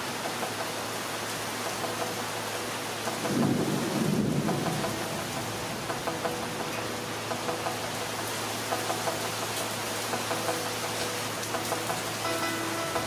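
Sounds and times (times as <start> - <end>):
pouring rain: 0.0 - 13.0
thunder rumble: 3.2 - 6.1.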